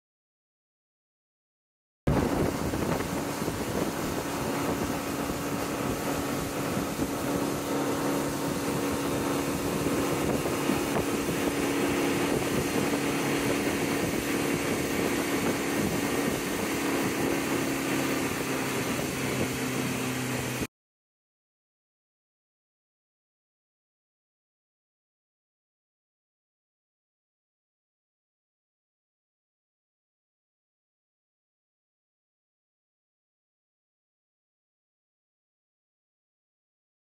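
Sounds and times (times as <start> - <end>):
boat engine humming: 2.1 - 20.7.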